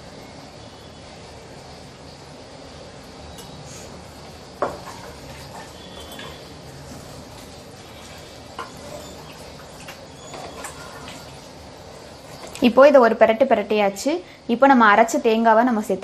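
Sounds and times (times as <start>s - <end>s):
spatula scraping metal pot: 4.6s - 12.7s.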